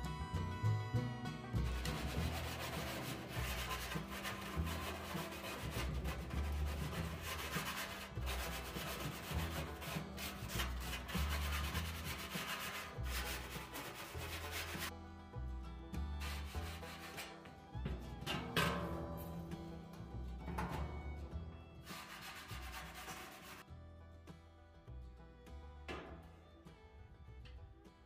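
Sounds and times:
gloved hands scraping steel drum: 0:01.0 - 0:15.0, 0:16.0 - 0:23.7.

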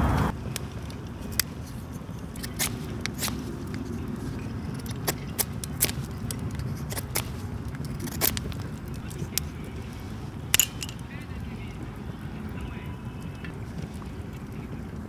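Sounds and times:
kindling clicking and scraping: 0:00.5 - 0:11.2.

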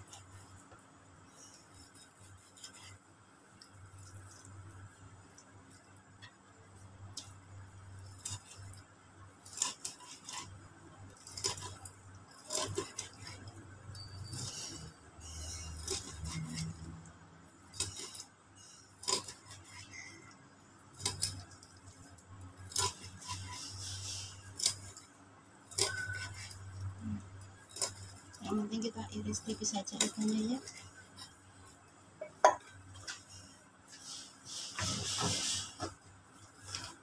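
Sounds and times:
knife scraping strokes: 0:01.3 - 0:03.1, 0:09.4 - 0:10.5, 0:11.2 - 0:13.5, 0:14.2 - 0:16.9, 0:22.7 - 0:25.1, 0:25.7 - 0:26.8, 0:33.9 - 0:35.9.

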